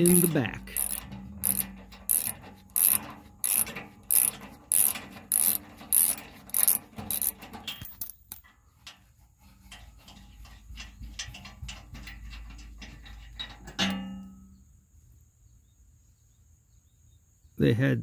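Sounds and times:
socket ratchet clicking: 0.0s - 8.0s.

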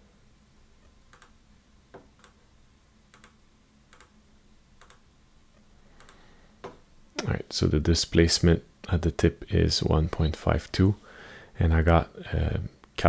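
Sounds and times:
faint computer mouse clicks: 1.1s - 1.4s, 6.0s - 6.2s.

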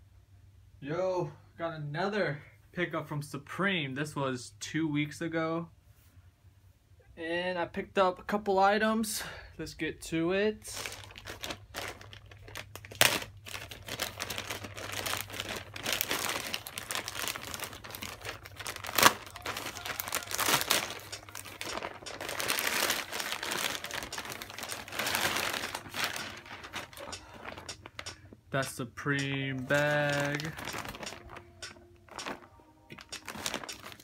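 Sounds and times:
plastic mailer bag tearing: 10.7s - 28.1s, 29.6s - 31.5s, 32.1s - 34.0s
plastic snapping: 15.8s - 28.2s, 30.2s - 34.0s.

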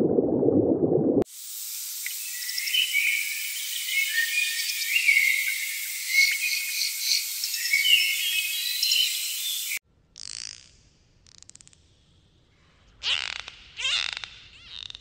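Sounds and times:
insects chirring and trilling: 1.3s - 9.8s
gliding whistled calls: 2.0s - 9.8s.

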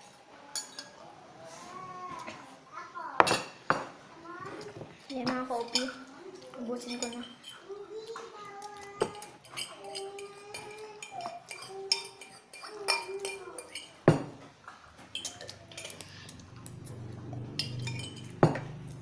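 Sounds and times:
cutlery clinking on ceramic: 4.5s - 19.0s
glasses being handled: 8.8s - 19.0s.

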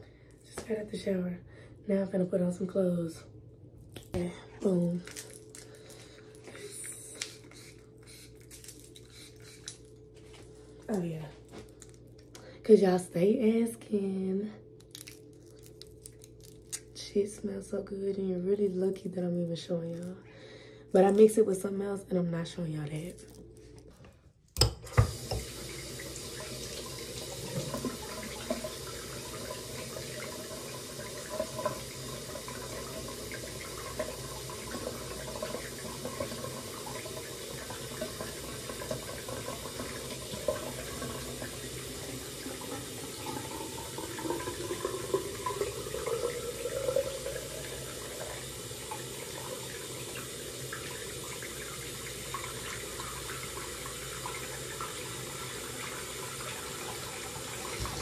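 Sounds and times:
water running from a tap: 24.9s - 58.0s.

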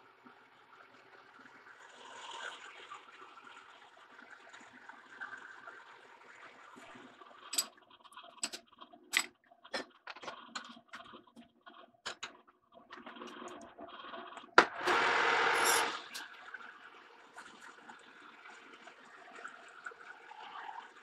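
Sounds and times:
metal lathe drilling steel: 14.8s - 16.2s.

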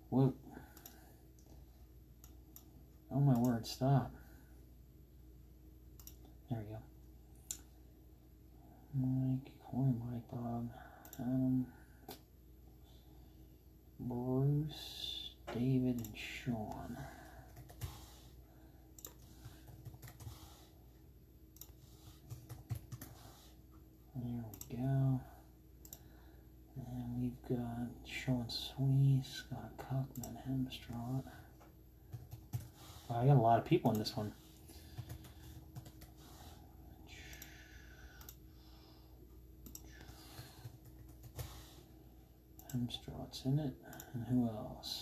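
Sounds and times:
low steady hum: 0.0s - 45.0s
keyboard clicks: 6.0s - 6.3s, 15.5s - 18.1s, 19.0s - 20.6s, 21.6s - 23.4s, 33.8s - 36.5s, 39.6s - 41.7s.

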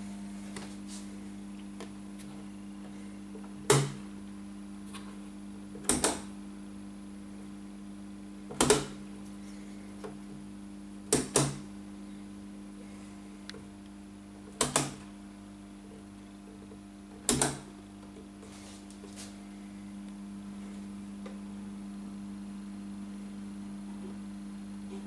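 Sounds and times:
low mains hum: 0.0s - 25.0s
rotary switch snapping: 5.8s - 6.3s, 8.5s - 9.0s, 14.6s - 15.1s, 17.2s - 17.7s.

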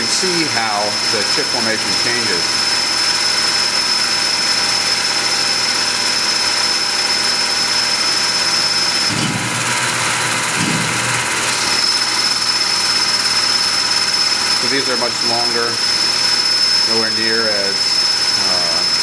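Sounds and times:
lathe machine noise with whine: 0.0s - 19.0s
low machine rumble: 4.8s - 19.0s.

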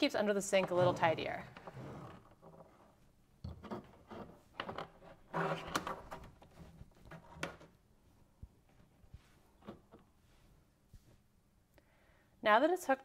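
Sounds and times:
soft rustles: 8.0s - 11.4s.

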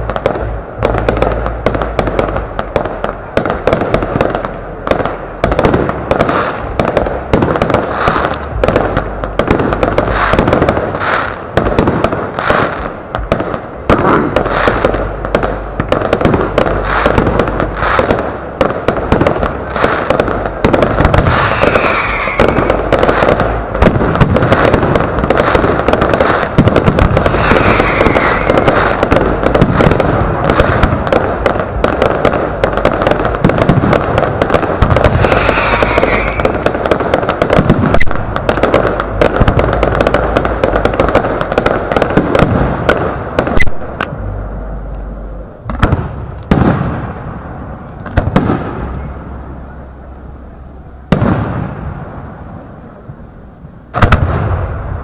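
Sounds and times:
firework crackle: 0.0s - 55.0s
firework shells bursting: 0.0s - 55.0s
firework launch thumps: 20.7s - 44.4s
falling whistle: 21.4s - 22.6s, 27.4s - 28.5s, 35.2s - 36.5s.

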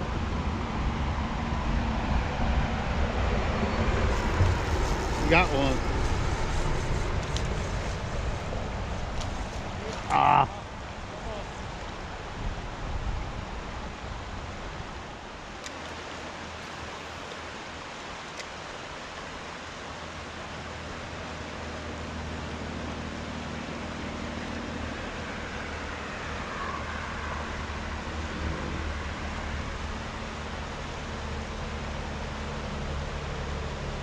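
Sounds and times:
wind on microphone: 0.0s - 15.3s
river water rushing: 0.1s - 34.0s.

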